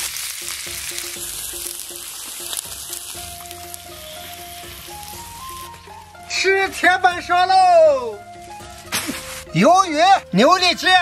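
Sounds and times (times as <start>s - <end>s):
meat sizzling on a griddle: 0.0s - 6.9s, 8.0s - 9.6s
light background music: 0.0s - 11.0s.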